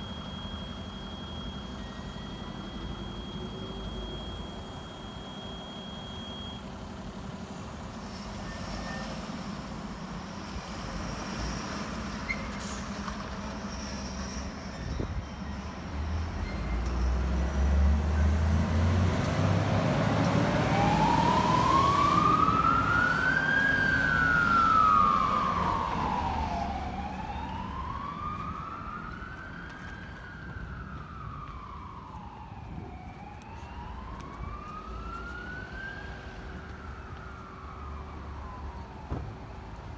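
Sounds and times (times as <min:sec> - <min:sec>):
siren wailing: 0:00.0 - 0:06.8, 0:19.6 - 0:39.8
fire engine rumble: 0:00.0 - 0:39.9.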